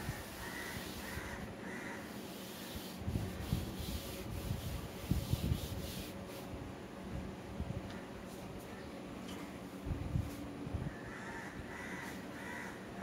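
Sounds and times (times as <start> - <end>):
duster rubbing on chalkboard: 0.0 - 6.5.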